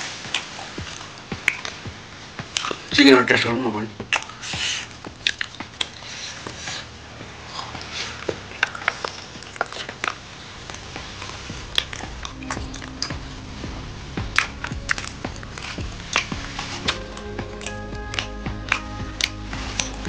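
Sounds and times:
people chewing: 0:00.0 - 0:03.1, 0:03.8 - 0:20.0
faint background music: 0:00.0 - 0:20.0
wet mouth clicks and lip smacks: 0:04.1 - 0:06.9, 0:14.4 - 0:20.0.

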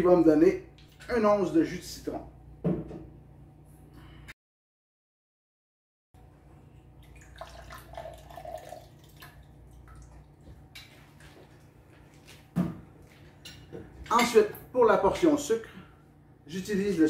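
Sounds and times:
juice dripping into a glass: 0:07.0 - 0:10.3.

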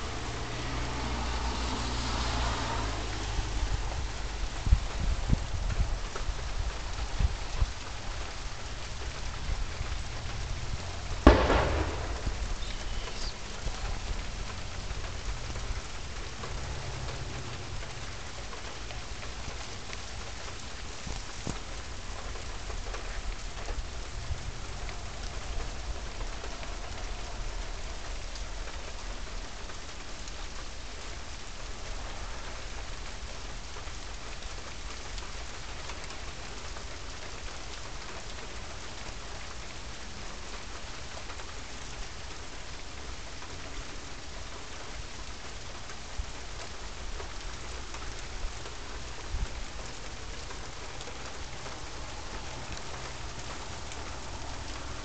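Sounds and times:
steady rain falling: 0:00.0 - 0:55.0
thunder clap: 0:11.1 - 0:14.6.

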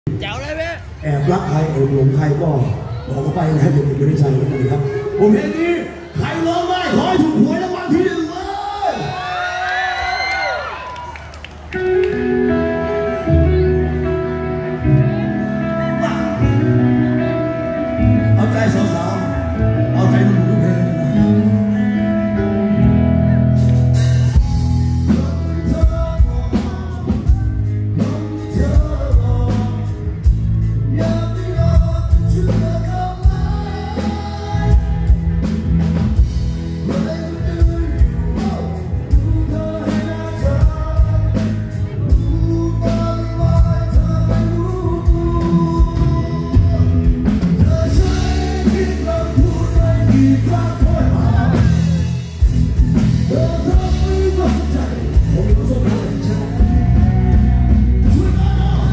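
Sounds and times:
rock band playing live: 0:00.1 - 0:58.9
man singing: 0:18.0 - 0:22.1, 0:25.0 - 0:35.6, 0:36.8 - 0:52.3, 0:52.9 - 0:58.9.

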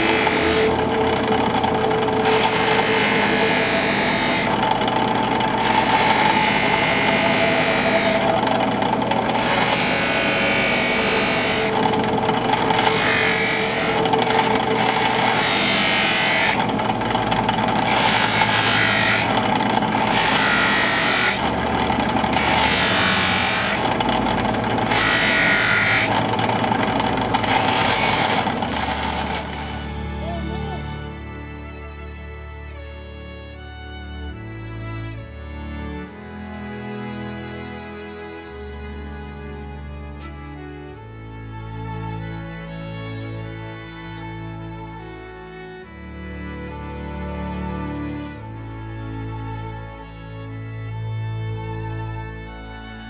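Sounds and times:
drill press motor hum: 0:00.0 - 0:31.4.

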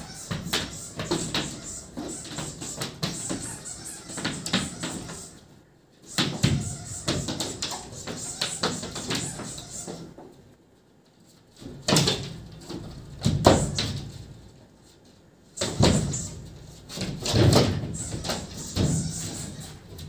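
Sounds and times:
cats bumping and scuffling: 0:00.0 - 0:05.4, 0:06.1 - 0:10.4, 0:15.6 - 0:20.0.

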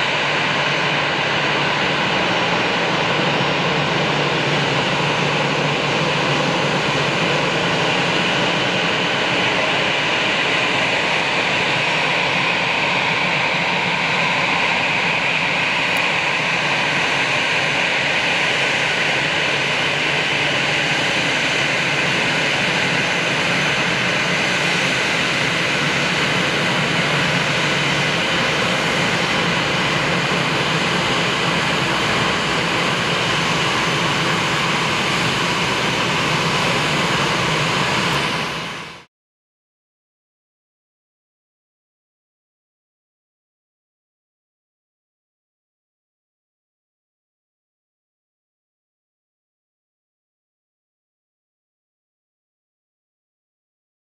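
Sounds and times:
jet engines whining: 0:00.0 - 0:39.1.

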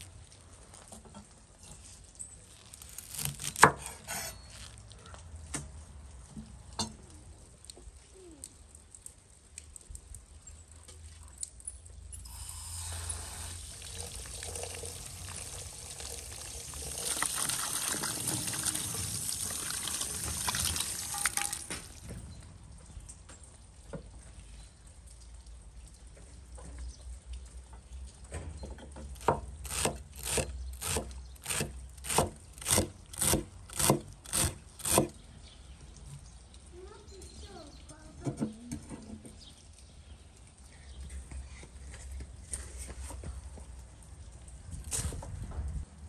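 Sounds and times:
water splashing into a colander: 0:12.2 - 0:22.2.

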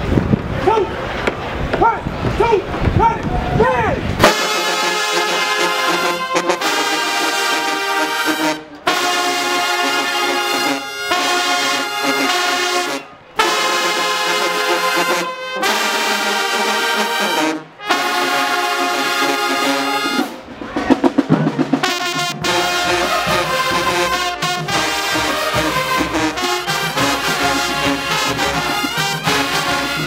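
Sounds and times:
marching band brass chords: 0:04.0 - 0:30.0
drum roll: 0:19.3 - 0:30.0.

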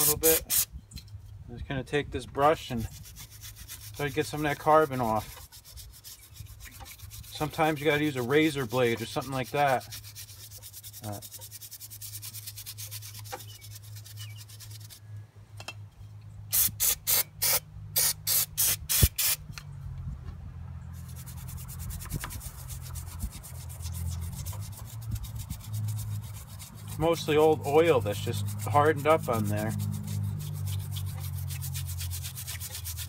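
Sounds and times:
wire brush scrubbing metal: 0:00.0 - 0:00.7, 0:02.5 - 0:15.0, 0:21.0 - 0:33.0.

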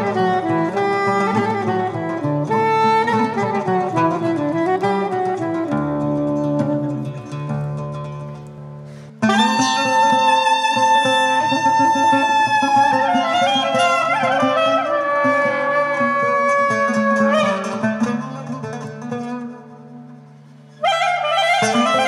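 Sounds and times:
soprano saxophone: 0:00.0 - 0:07.1, 0:09.2 - 0:17.8, 0:20.8 - 0:22.0
plucked lute: 0:00.0 - 0:22.0.

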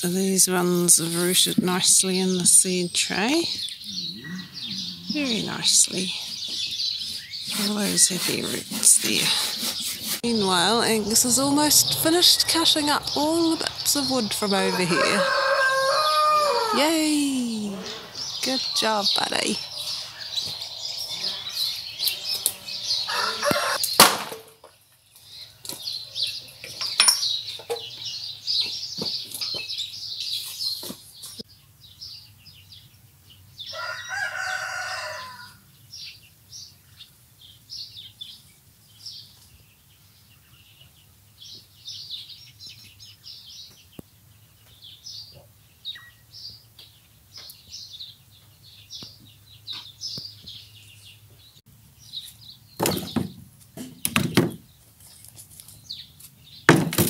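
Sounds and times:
small birds chirping: 0:00.0 - 0:24.0, 0:24.9 - 0:56.8
rooster crowing: 0:14.7 - 0:16.8, 0:21.1 - 0:23.8, 0:33.7 - 0:35.6.

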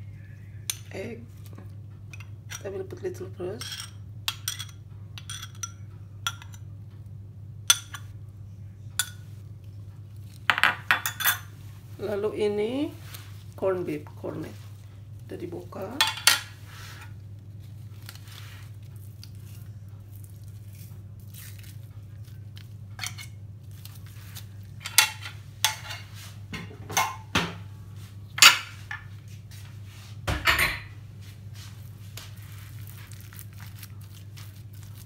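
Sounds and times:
steady low hum: 0:00.0 - 0:35.0
metal spoon clinking on bowl: 0:03.6 - 0:06.7, 0:07.7 - 0:08.1.

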